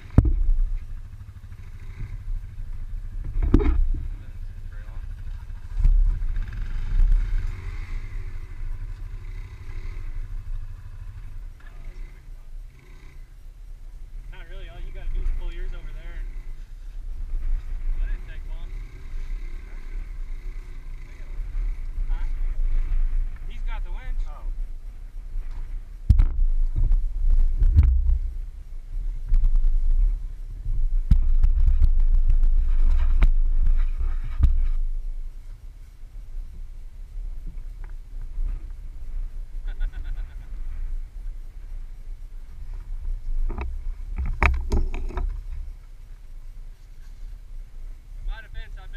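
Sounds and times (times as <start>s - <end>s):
distant atv engine revving: 0.0s - 46.7s
atv engine idling: 0.0s - 48.9s
sharp clicks and rattles: 43.4s - 45.6s.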